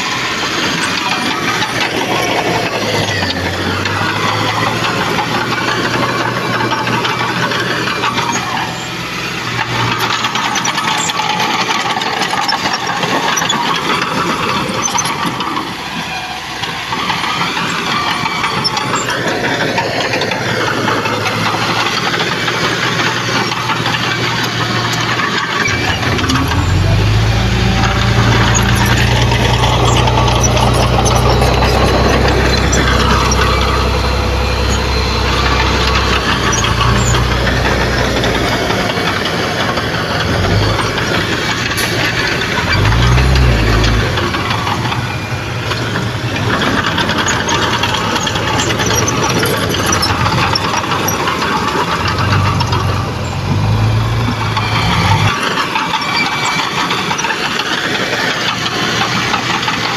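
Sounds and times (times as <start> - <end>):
earthmoving machines clattering: 0.0 - 59.9
deep low engine drone: 25.5 - 55.5.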